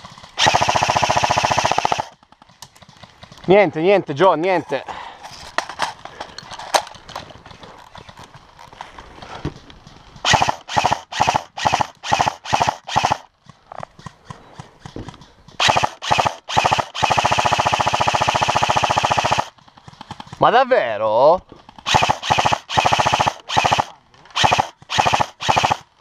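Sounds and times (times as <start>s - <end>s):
airsoft rifle full-auto burst: 0.4s - 2.2s, 10.2s - 13.3s, 15.6s - 19.5s, 21.8s - 26.0s.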